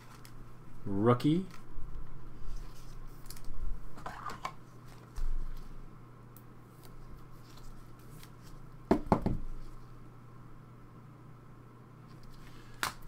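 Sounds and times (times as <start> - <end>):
soft plastic rustles: 0.0 - 5.8, 6.7 - 8.7
steady low hum: 0.0 - 13.0.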